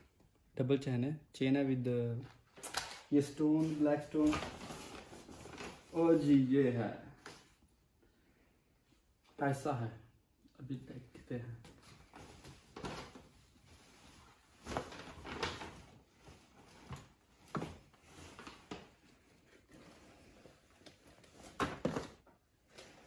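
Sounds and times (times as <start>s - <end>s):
cloth rustling and handling: 2.2s - 8.0s, 11.2s - 23.0s.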